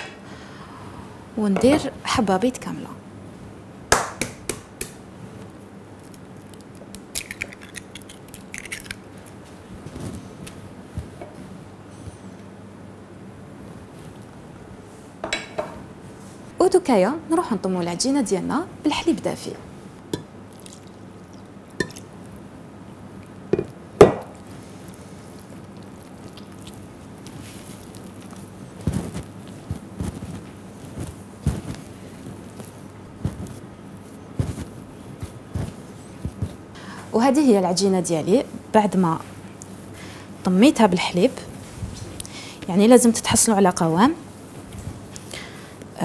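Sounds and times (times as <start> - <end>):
egg cracking against glass bowl: 6.5 - 9.0
hands mixing dough: 24.4 - 36.7.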